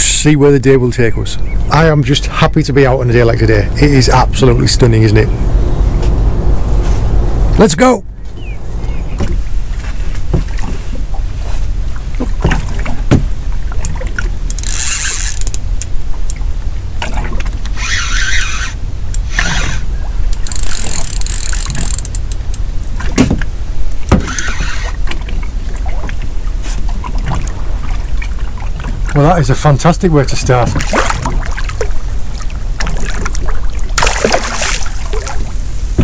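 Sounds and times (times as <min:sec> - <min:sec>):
boat engine rumbling: 0:00.0 - 0:36.0
water spraying off hull: 0:09.2 - 0:22.0, 0:22.7 - 0:36.0.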